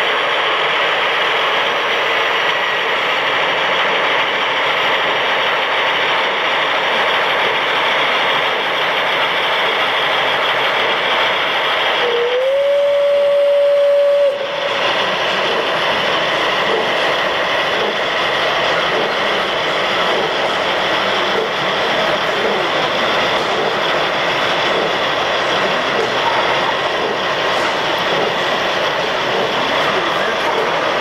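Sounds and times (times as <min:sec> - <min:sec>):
model steam locomotive running: 0:00.0 - 0:31.0
model locomotive whistle: 0:12.0 - 0:14.6.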